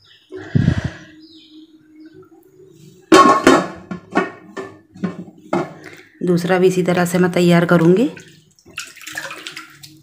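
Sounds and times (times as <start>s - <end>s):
plate knocking steel bowl: 3.1s - 5.7s
dishes clattering: 3.1s - 5.8s.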